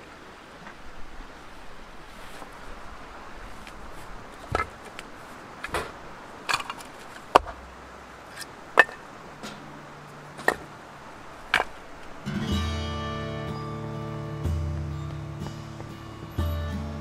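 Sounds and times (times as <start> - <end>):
firewood logs knocking together: 3.6 - 7.7, 8.3 - 10.7, 11.5 - 11.8.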